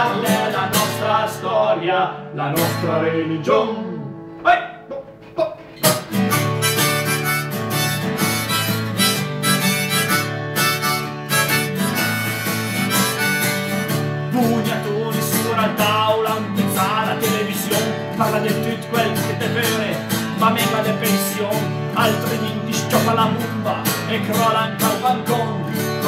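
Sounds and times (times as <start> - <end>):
guitar accompaniment: 0.0 - 26.0
harmonica solo: 5.0 - 14.3.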